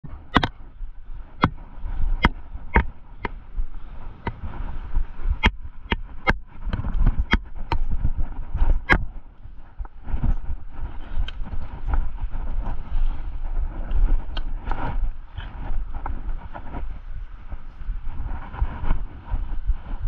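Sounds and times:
low steady rumble: 0.0s - 20.0s
bike clicks and knocks: 0.3s - 0.6s.

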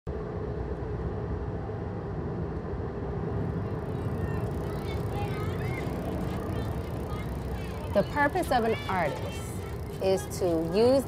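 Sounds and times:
faint steady hum: 0.1s - 11.0s
car driving rumble: 3.2s - 11.0s.

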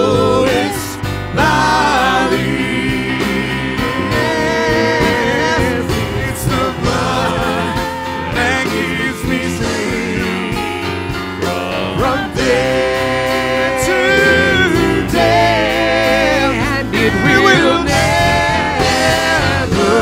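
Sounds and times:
keyboard: 0.0s - 20.0s
person singing with vibrato: 0.0s - 20.0s
worship band playing: 0.0s - 20.0s.

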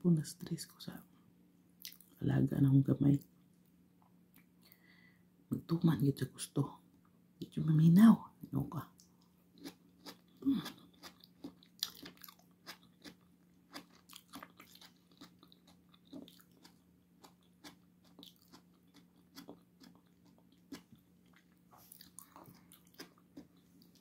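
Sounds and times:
person chewing food: 9.1s - 24.0s.

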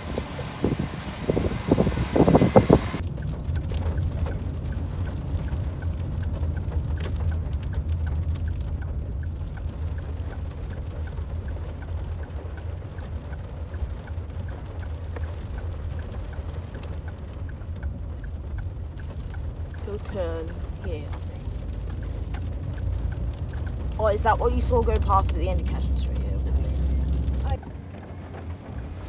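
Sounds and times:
low engine hum: 0.0s - 29.0s
raindrops tapping on windscreen: 0.0s - 29.0s
regular ticking: 1.3s - 28.1s.

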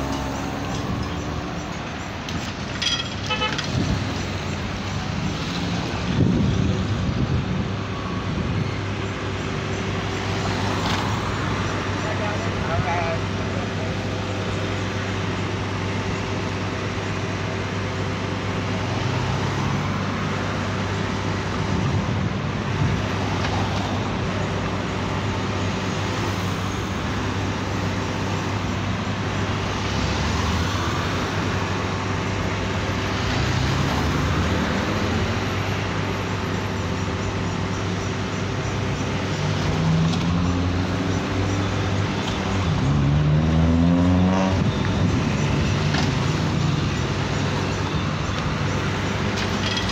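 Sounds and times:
low traffic engine hum: 0.0s - 49.9s
cars accelerating: 18.1s - 49.9s.

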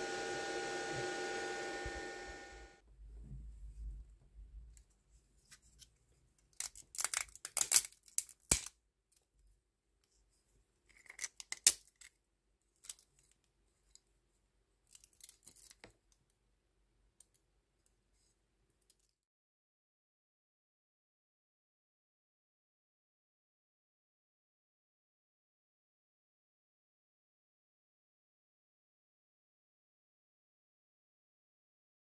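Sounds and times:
plastic crackling and snapping: 6.5s - 8.8s.

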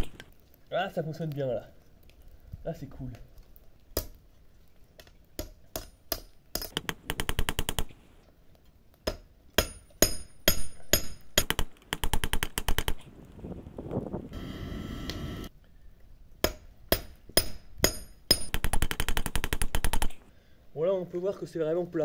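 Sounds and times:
hammer beating hot steel: 9.1s - 11.6s, 16.4s - 18.7s.

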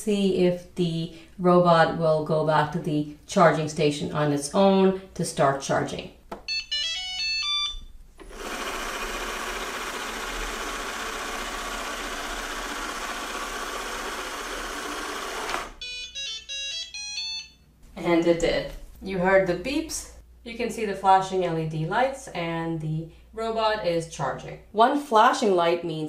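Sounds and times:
robot vacuum whirring: 8.2s - 15.8s.

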